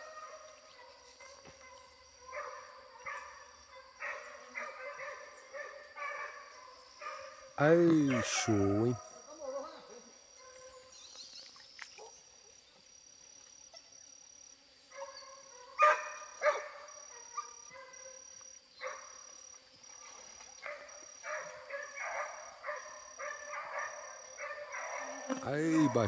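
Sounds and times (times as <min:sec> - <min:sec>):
hounds baying: 0:01.6 - 0:09.7, 0:15.0 - 0:18.2, 0:20.7 - 0:26.0.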